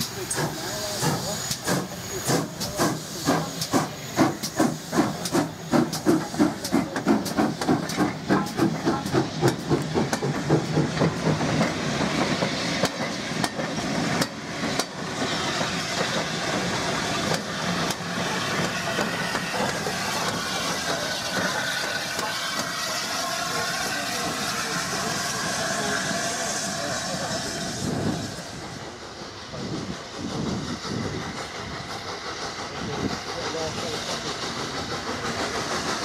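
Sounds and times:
steam hiss: 0:00.0 - 0:36.0
steam locomotive exhaust beats: 0:00.0 - 0:36.0
train coaches rumbling: 0:00.0 - 0:36.0.

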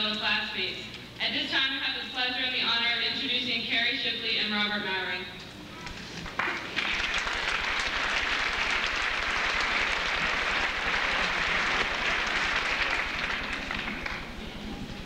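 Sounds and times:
audience applauding: 0:06.3 - 0:15.0.

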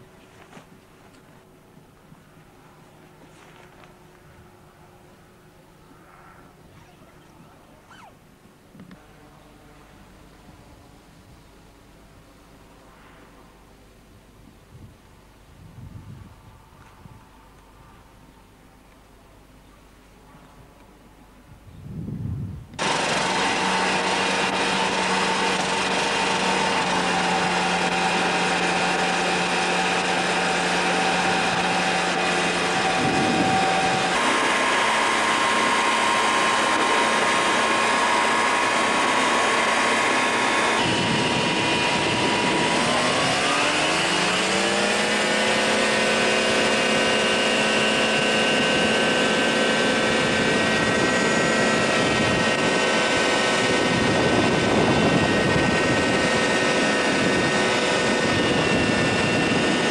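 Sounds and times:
microlight engine and propeller: 0:22.6 - 0:59.9.

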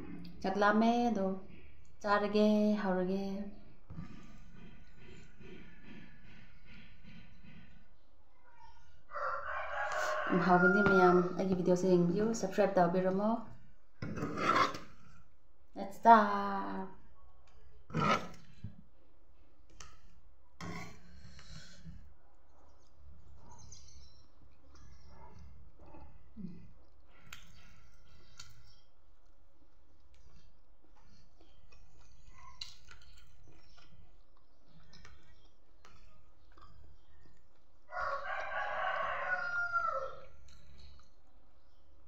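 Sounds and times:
smacking and chewing sounds: 0:24.3 - 0:38.5, 0:40.1 - 0:42.0.

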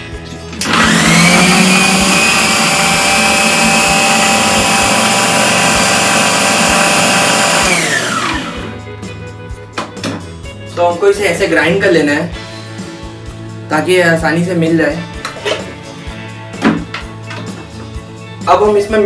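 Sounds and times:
mixer grinder whining: 0:00.6 - 0:08.8.

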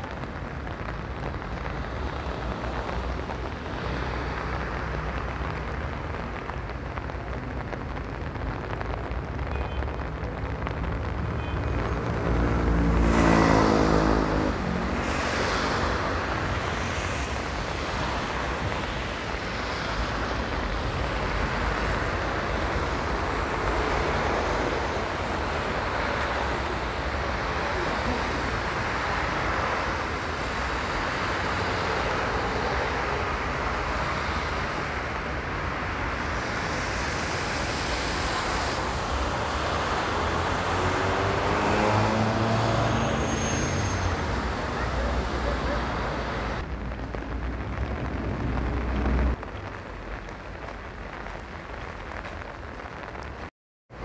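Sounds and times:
vehicle engine approaching: 0:39.9 - 0:43.3.

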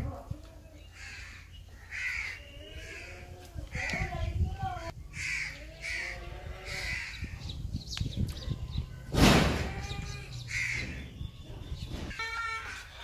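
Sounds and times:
crows cawing: 0:01.0 - 0:04.1, 0:05.1 - 0:07.4, 0:09.6 - 0:11.1, 0:12.1 - 0:13.0
loud short thump: 0:09.1 - 0:09.8.

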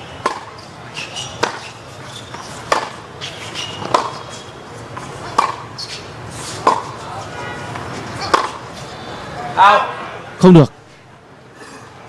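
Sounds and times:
tennis ball struck by rackets: 0:00.2 - 0:04.2, 0:05.0 - 0:07.0, 0:07.7 - 0:08.7.

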